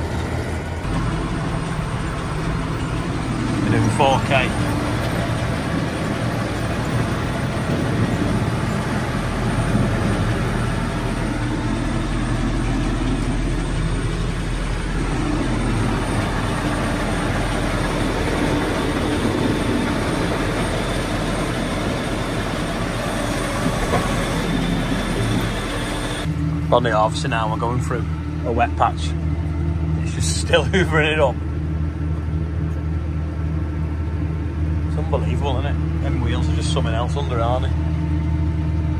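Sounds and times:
tractor engine drone: 0.0 - 38.9.

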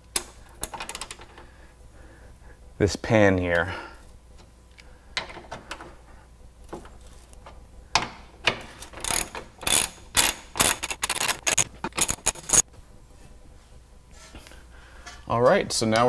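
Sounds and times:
wrench clicking: 9.0 - 12.6.

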